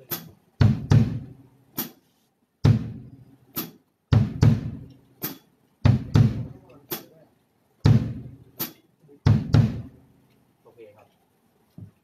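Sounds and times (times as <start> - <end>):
kick drum hits: 0.6 - 1.3, 2.6 - 3.1, 4.1 - 4.9, 5.9 - 6.6, 7.9 - 8.4, 9.3 - 9.9
snare drum hit: 2.7 - 3.0, 3.6 - 7.1.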